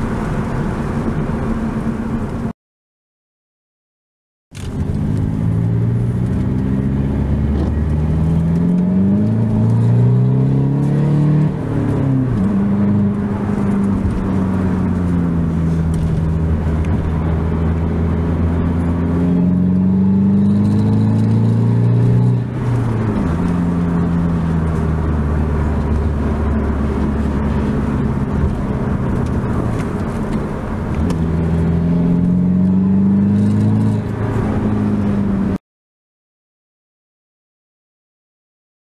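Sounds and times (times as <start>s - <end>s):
car engine accelerating: 4.6s - 35.6s.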